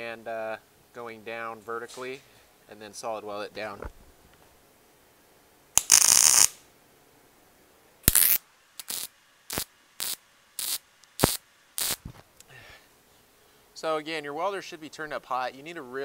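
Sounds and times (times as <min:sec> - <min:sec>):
welder arc crackling: 0:05.8 - 0:06.6, 0:08.0 - 0:12.2.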